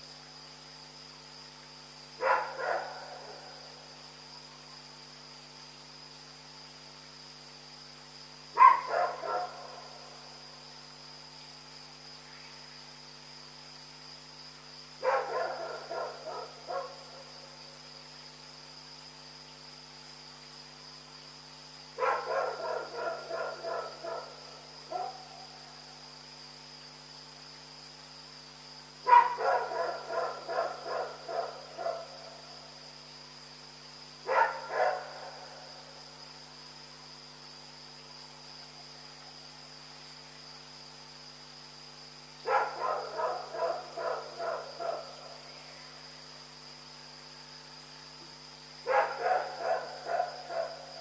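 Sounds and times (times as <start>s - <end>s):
dog barking: 2.2s - 3.4s, 8.6s - 9.6s, 15.0s - 17.0s, 22.0s - 25.3s, 29.1s - 32.1s, 34.3s - 35.3s, 42.5s - 45.2s, 48.9s - 50.9s.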